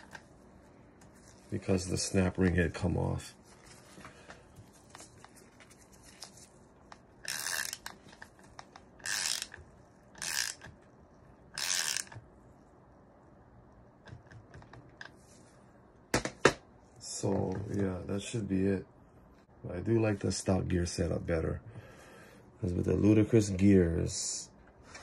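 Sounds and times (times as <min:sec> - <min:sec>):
ratchet wrench clicking: 0:07.2 - 0:07.9, 0:09.0 - 0:09.6, 0:10.2 - 0:10.7, 0:11.6 - 0:12.2.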